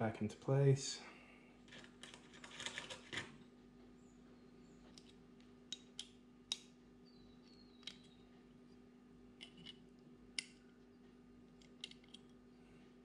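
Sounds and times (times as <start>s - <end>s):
small metal clicks: 7.4s - 8.2s, 9.4s - 10.8s, 11.5s - 12.4s.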